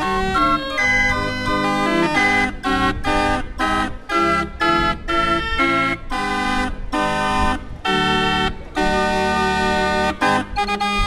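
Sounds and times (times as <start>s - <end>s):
barrel organ playing chords: 0.0s - 11.0s.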